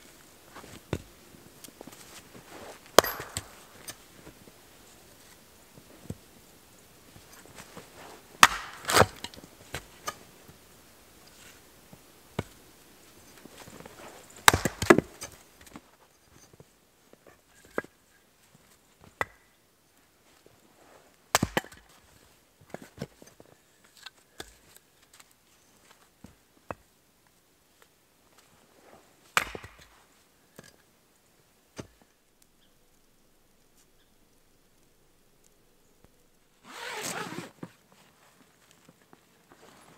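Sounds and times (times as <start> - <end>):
axe splitting firewood: 2.6 - 4.0, 8.4 - 10.2, 14.4 - 15.4.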